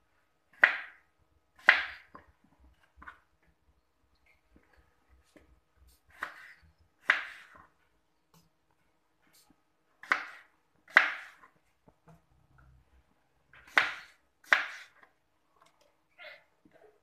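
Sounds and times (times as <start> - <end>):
knife chopping on plastic board: 0.5 - 1.0, 1.6 - 2.2, 6.1 - 7.7, 10.0 - 11.5, 13.6 - 15.0.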